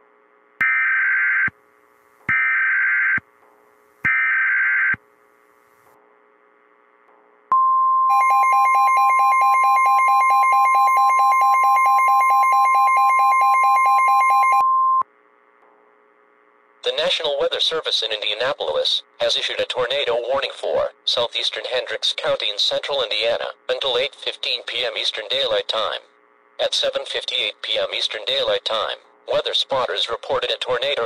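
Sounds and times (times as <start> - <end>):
steady alarm tone: 0.6 - 1.6, 2.2 - 3.3, 4.0 - 5.0, 8.1 - 15.0.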